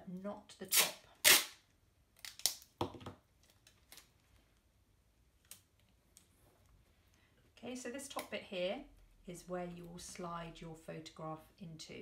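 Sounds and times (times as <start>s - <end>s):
tape ripping from roll: 0.7s - 1.6s, 2.2s - 2.7s.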